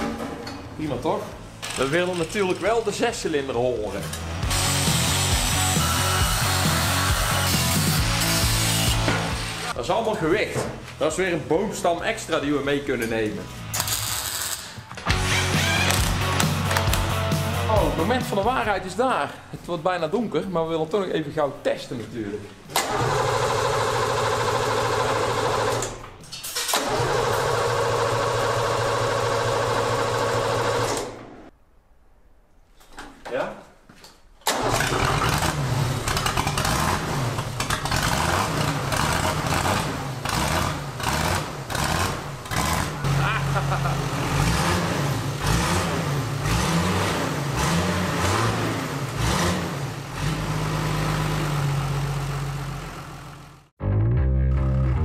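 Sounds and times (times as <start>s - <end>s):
diesel engine revving and idling: 4.3s - 9.8s, 22.8s - 25.9s, 26.8s - 31.0s, 34.5s - 53.7s
diesel engine starter cranking: 22.7s - 31.4s, 34.4s - 43.1s.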